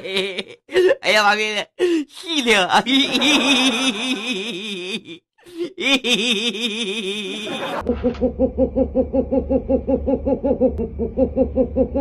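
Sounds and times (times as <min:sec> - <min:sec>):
person laughing: 0:00.0 - 0:01.0, 0:02.4 - 0:12.0
low hum: 0:07.8 - 0:12.0.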